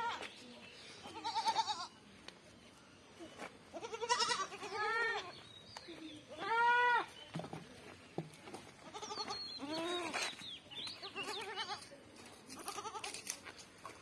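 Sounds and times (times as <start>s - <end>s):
goat kids bleating: 1.0s - 2.0s, 3.7s - 5.3s, 6.4s - 7.2s, 8.8s - 10.2s, 11.0s - 11.9s, 12.5s - 13.2s.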